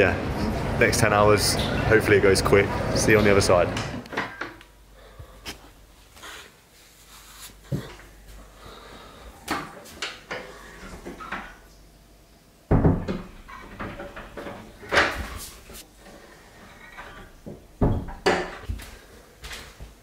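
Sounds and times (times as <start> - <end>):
door clunking: 12.7 - 15.8, 16.8 - 18.7.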